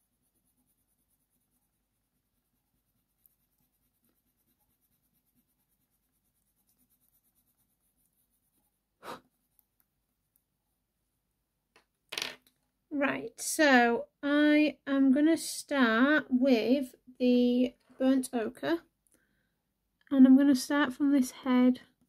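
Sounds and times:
pencil scratching on paper: 0.0 - 9.8.

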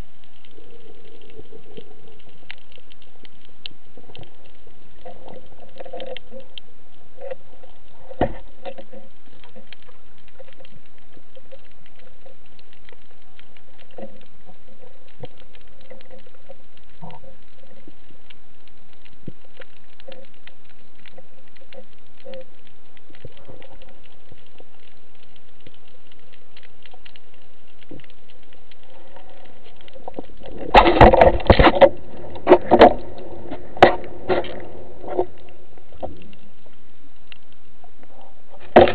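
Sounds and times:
faint underwater clicks and ticks: 0.0 - 38.9
air bubbles rushing: 26.9 - 36.6.

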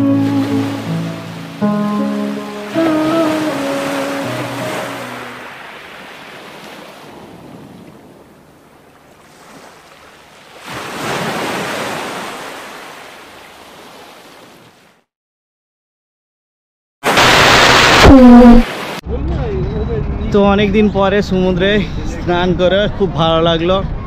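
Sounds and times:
small waves washing over sand: 2.6 - 15.0.

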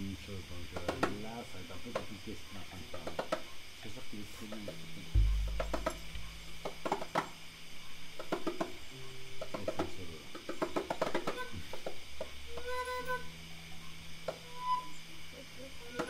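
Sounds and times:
hand drums tapped: 4.5 - 7.4, 9.4 - 11.4
short held pitched note: 5.1 - 6.6.

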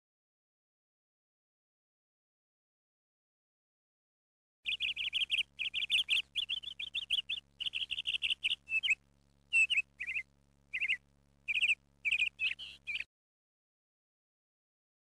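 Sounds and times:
songbird chirping: 4.7 - 13.1.

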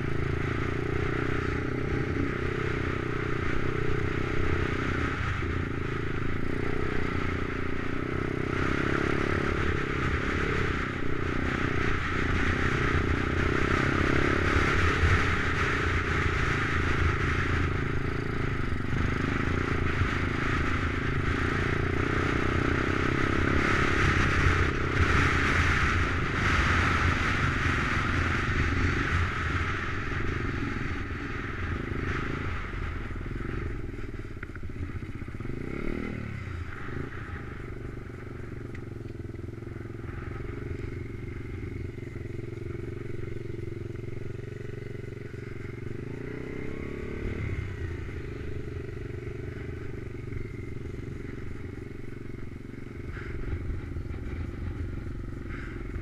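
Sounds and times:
pit bike engine running: 0.0 - 56.0.

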